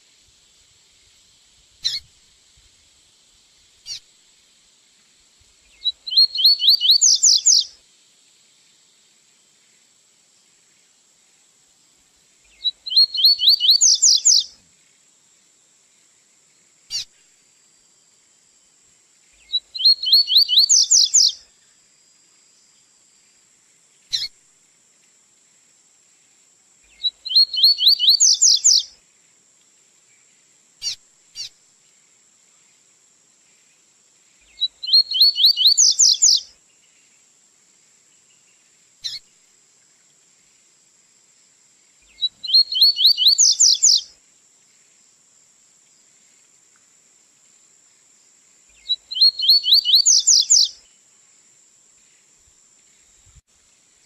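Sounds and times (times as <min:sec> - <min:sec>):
bird song rising runs: 0:27.3 - 0:28.8, 0:34.6 - 0:36.4, 0:42.1 - 0:44.0, 0:48.8 - 0:50.7.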